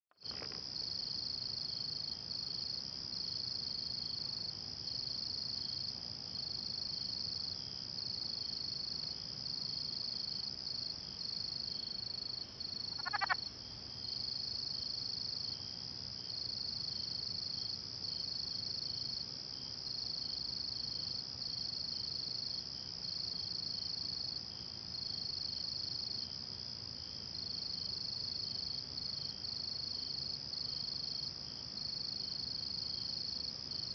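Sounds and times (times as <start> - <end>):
high-pitched insect chorus: 0.2 - 33.9
frog call: 12.8 - 13.5.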